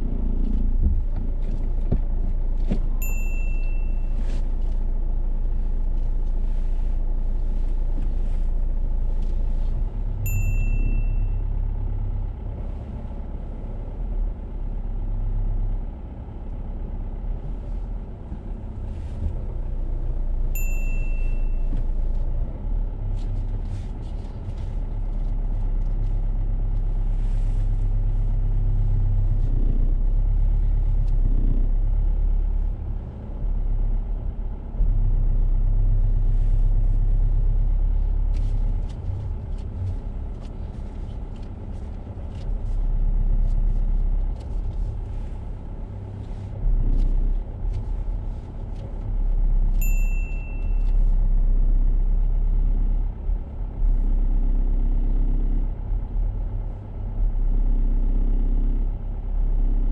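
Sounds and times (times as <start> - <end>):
car engine running at low speed: 0.0 - 59.9
short high beep: 3.0 - 4.2, 10.3 - 11.4, 20.6 - 21.6, 49.8 - 50.8.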